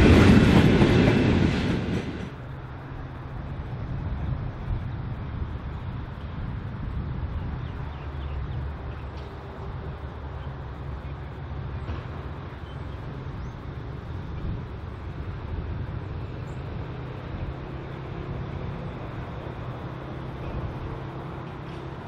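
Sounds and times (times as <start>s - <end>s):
diesel locomotive engines droning: 0.0s - 22.0s.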